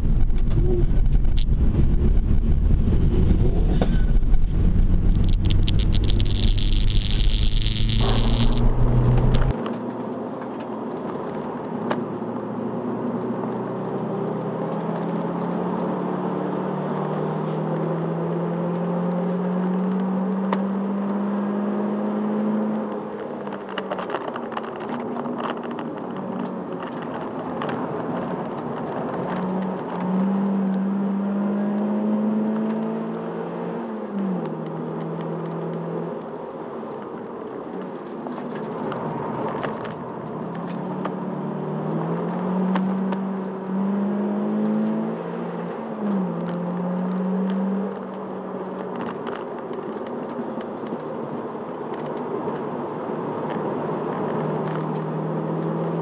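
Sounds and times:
car engine accelerating: 0.0 - 56.0
sharp clicks: 4.2 - 9.8.

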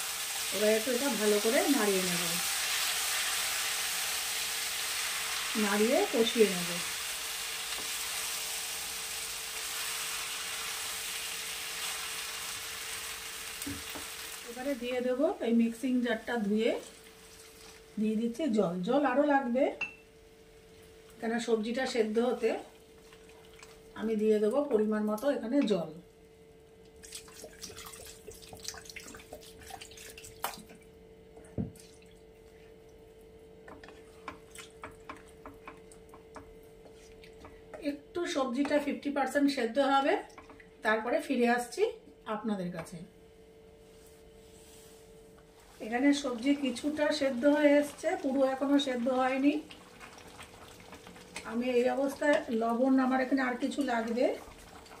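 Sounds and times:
food sizzling in oil: 0.0 - 23.8, 45.6 - 55.0
faint steady hum: 0.0 - 55.0.

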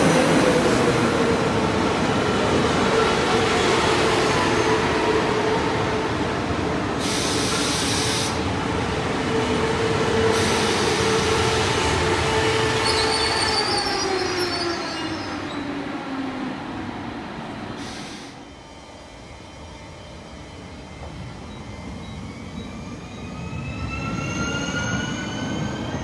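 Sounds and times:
train passing with whine: 0.0 - 26.0
hiss: 6.9 - 8.5, 10.3 - 11.4, 17.8 - 18.6
wavering wheel squeal: 12.8 - 15.6.

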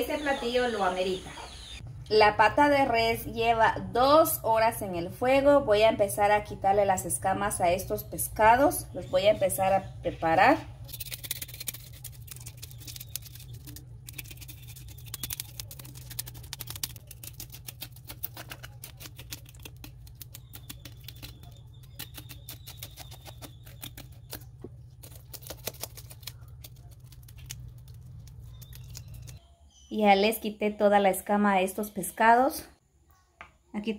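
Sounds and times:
knife scraping fish scales: 10.9 - 21.3.

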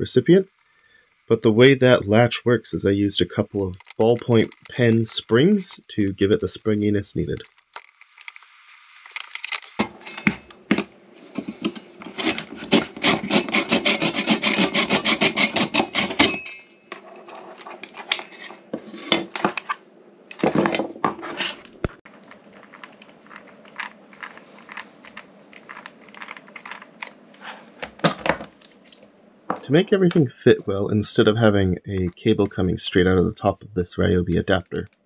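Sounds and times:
rapid scraping strokes by hand: 12.2 - 16.2.

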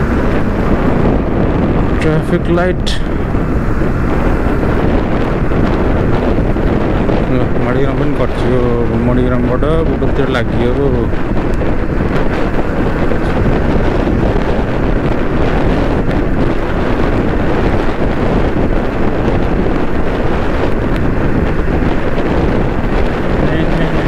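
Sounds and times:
vehicle and road noise: 0.0 - 24.0
wind buffeting microphone: 0.0 - 24.0.

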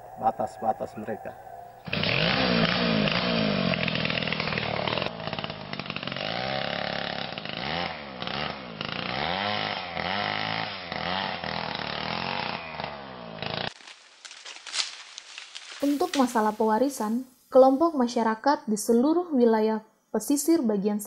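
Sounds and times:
chainsaw cutting wood: 1.9 - 16.6.

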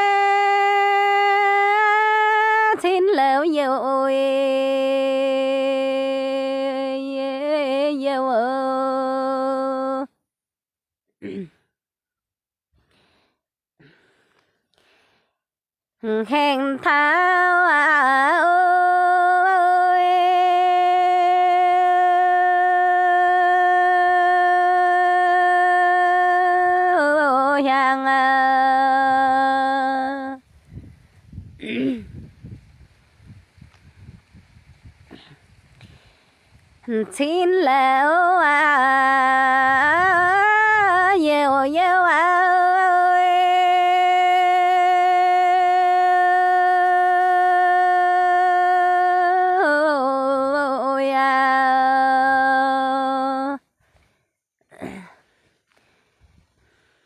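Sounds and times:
person singing unaccompanied: 0.0 - 10.2, 16.0 - 30.5, 36.8 - 53.7.

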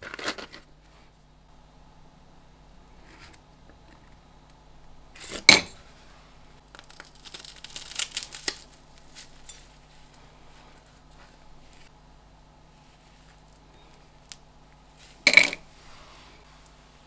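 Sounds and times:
knife crunching through popcorn ball: 6.6 - 11.7.

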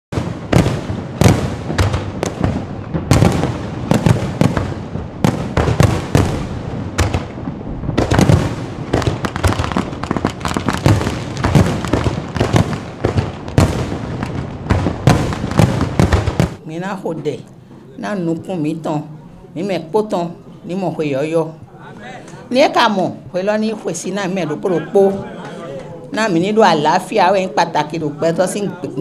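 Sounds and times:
fireworks bangs: 0.1 - 16.6
fireworks crackling: 0.1 - 16.6.

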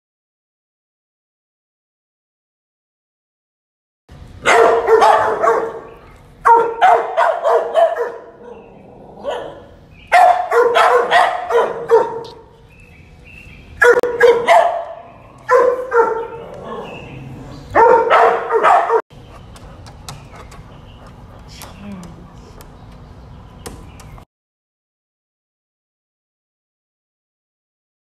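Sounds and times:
dog barking: 4.4 - 12.5, 13.8 - 19.0.

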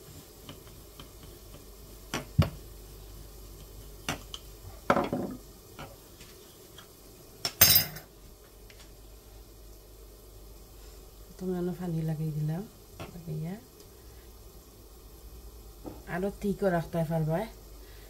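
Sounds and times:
rolling pin knocking on countertop: 2.1 - 2.6, 4.9 - 5.9.

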